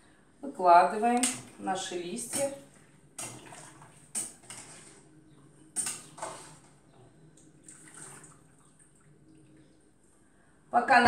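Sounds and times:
water dripping and splashing: 1.1 - 9.9
metal utensil clinking on pot: 2.2 - 2.6.

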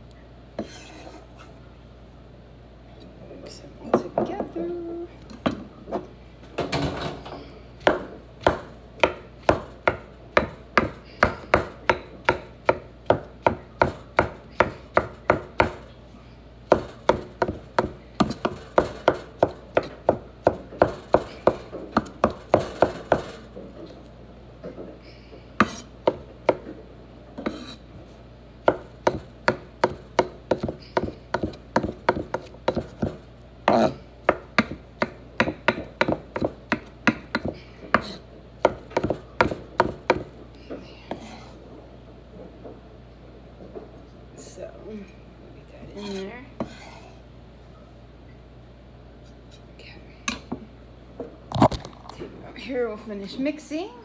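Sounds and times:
knife chopping on wooden board: 7.8 - 15.8, 16.7 - 23.4, 25.6 - 26.6, 27.4 - 27.8, 28.6 - 40.3.

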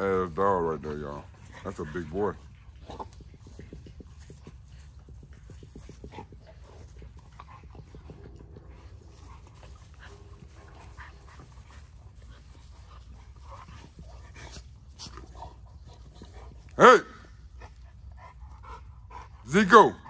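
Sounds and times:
dog panting: 0.0 - 20.0.

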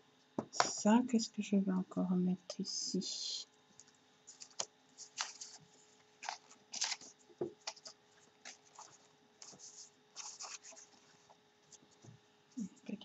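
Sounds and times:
paper rustling: 3.8 - 12.2.

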